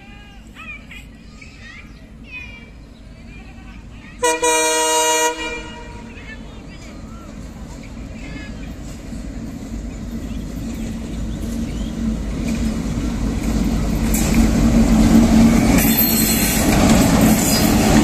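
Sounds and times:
diesel locomotive engine drone: 0.0 - 18.0
wheels on rails: 6.1 - 18.0.

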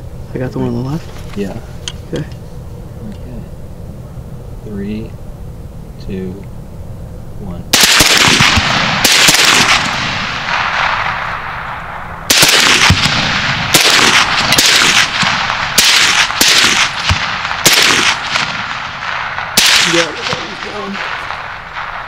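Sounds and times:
rifle shots: 7.7 - 22.0.

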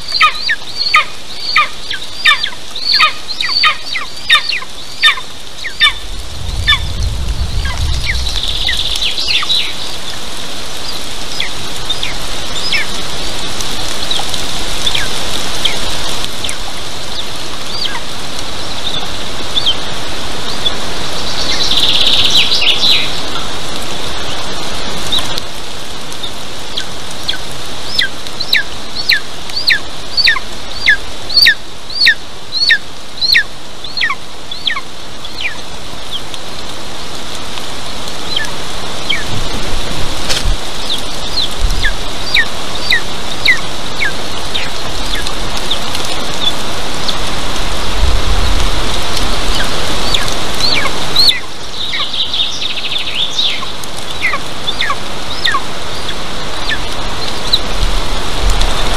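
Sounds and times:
eaglet begging calls: 0.0 - 6.0, 27.3 - 34.8, 49.6 - 57.6
steady background hiss: 0.0 - 58.9.

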